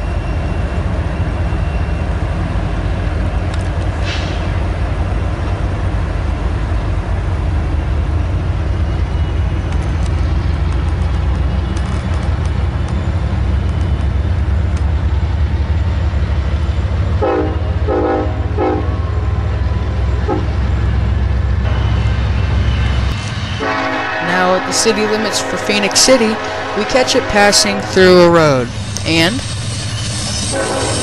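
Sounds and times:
freight train rumbling: 0:00.0 - 0:31.0
locomotive horn blasts: 0:17.2 - 0:19.3, 0:23.6 - 0:28.7, 0:30.5 - 0:31.0.

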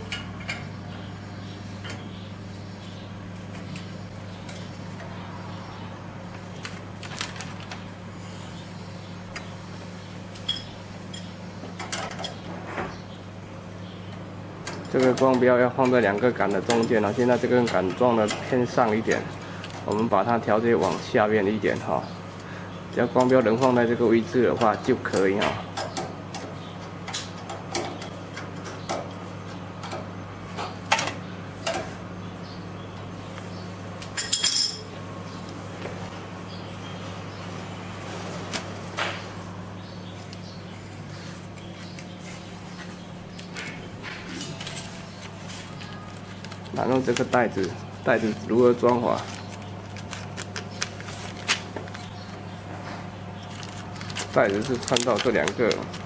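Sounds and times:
steady low hum: 0:00.0 - 0:56.0
rattle of clinks: 0:34.2 - 0:34.8.

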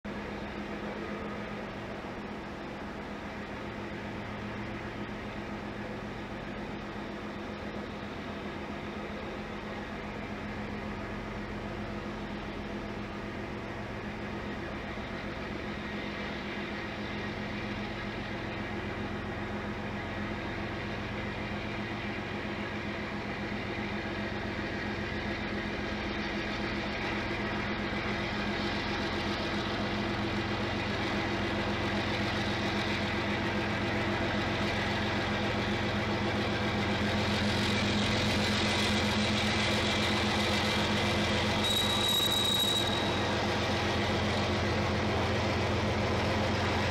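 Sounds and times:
diesel locomotive engine drone: 0:00.0 - 0:46.9.

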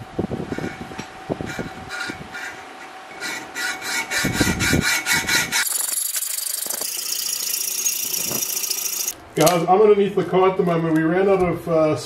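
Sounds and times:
hacksaw cutting metal pipe: 0:02.0 - 0:09.2.

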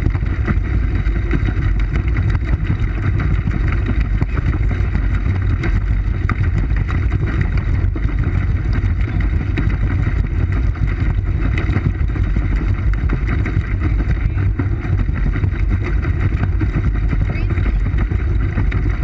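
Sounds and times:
water moving along hull: 0:00.0 - 0:19.0
wind on camera: 0:00.0 - 0:19.0.

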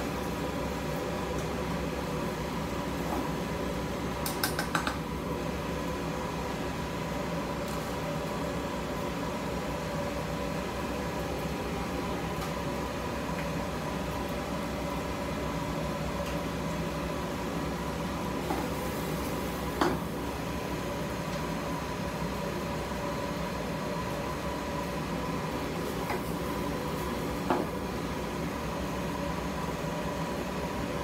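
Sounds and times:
kitchen ventilation hum: 0:00.0 - 0:31.0.

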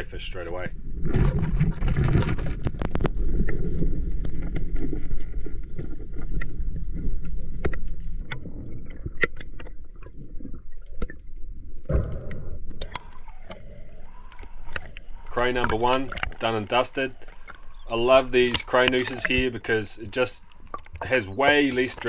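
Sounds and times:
underwater water rumble: 0:00.0 - 0:22.0
sharp clicks: 0:12.2 - 0:22.0.

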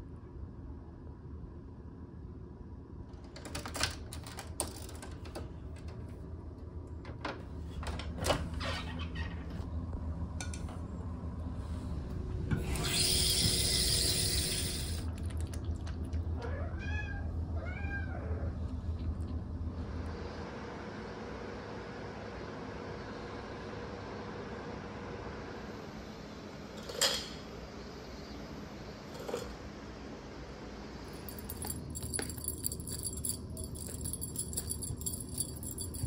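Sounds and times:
cat meowing: 0:16.4 - 0:18.5.

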